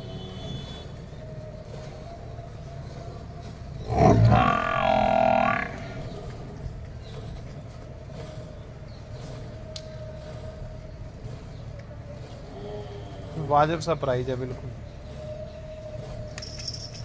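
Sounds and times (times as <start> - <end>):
buffalo bellowing: 3.8 - 6.3.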